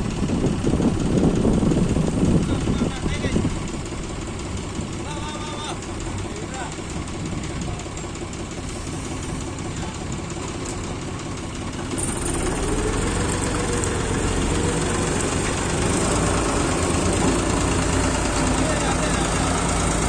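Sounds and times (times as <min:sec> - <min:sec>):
heavy diesel engines running: 0:00.0 - 0:20.0
engine revving: 0:11.8 - 0:20.0.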